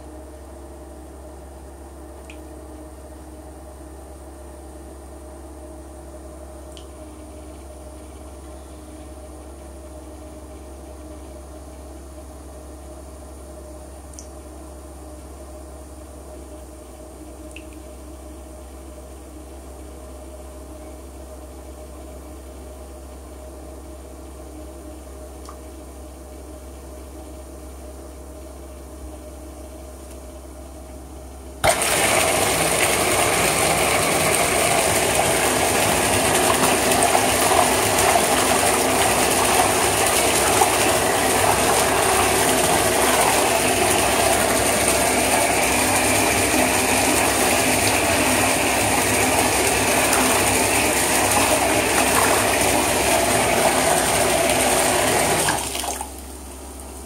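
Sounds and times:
water churning: 0:31.6 - 0:56.3
pump motor humming: 0:31.6 - 0:57.0.

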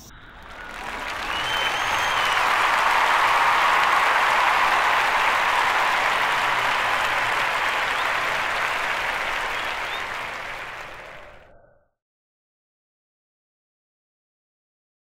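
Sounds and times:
applause: 0:00.3 - 0:11.5.

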